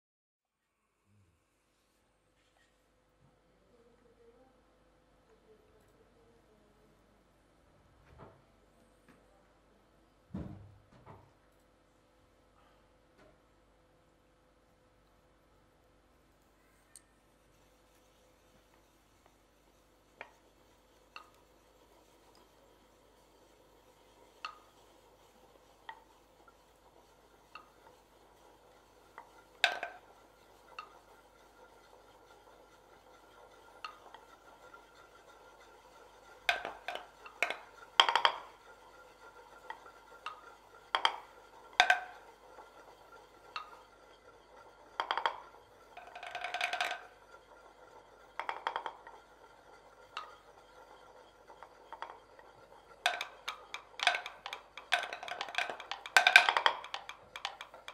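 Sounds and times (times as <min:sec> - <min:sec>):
mortar rattling run: 0:17.6 - 0:57.9.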